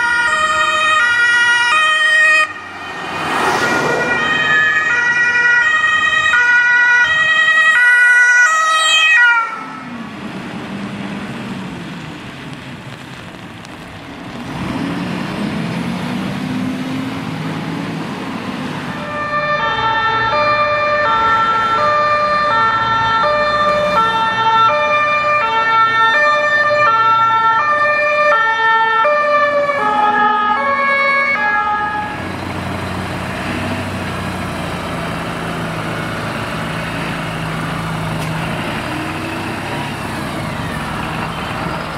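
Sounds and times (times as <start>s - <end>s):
two-tone emergency siren: 0.0s - 10.0s, 18.9s - 32.2s
engine hum: 0.0s - 28.2s, 29.2s - 41.9s
road traffic: 0.0s - 41.9s.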